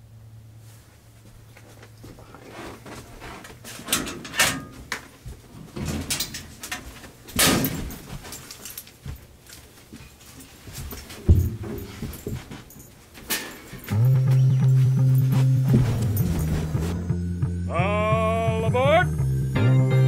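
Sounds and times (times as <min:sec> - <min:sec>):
coats and hangers rustling: 0:00.6 - 0:17.1
metal locker door clattering: 0:03.7 - 0:05.0, 0:05.6 - 0:08.2, 0:13.2 - 0:14.0
clothes rustling: 0:04.7 - 0:17.0.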